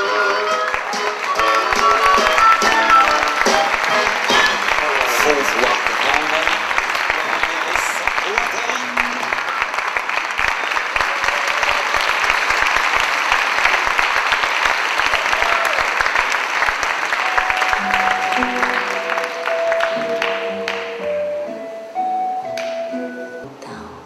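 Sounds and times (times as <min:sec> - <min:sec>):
music with long held notes: 0:00.0 - 0:05.7, 0:17.2 - 0:24.0
audience applauding: 0:00.0 - 0:21.6.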